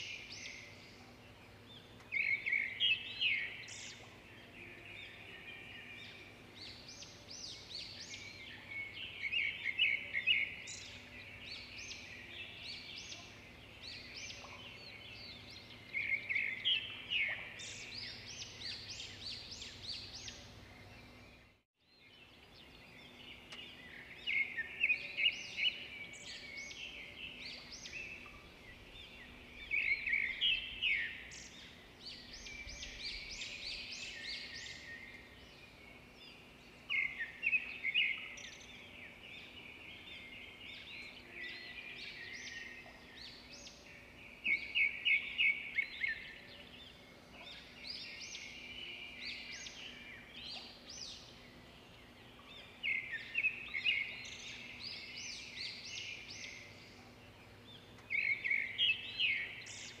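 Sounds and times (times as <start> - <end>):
quiet bird twittering: 0.0 - 60.0
songbirds chirping: 0.0 - 60.0.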